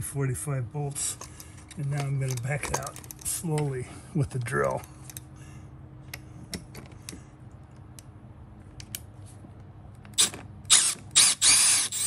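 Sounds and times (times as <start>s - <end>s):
low steady hum: 0.0s - 12.0s
cordless drill bursts: 10.2s - 12.0s.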